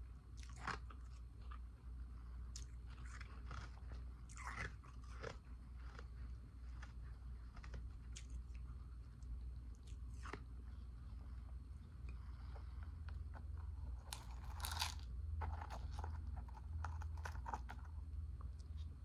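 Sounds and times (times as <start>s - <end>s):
ice crunching in mouth: 14.0s - 17.9s.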